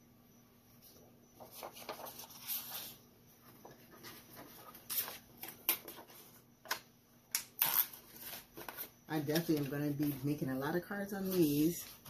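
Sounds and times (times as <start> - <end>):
paper packaging rustling: 1.4 - 6.3.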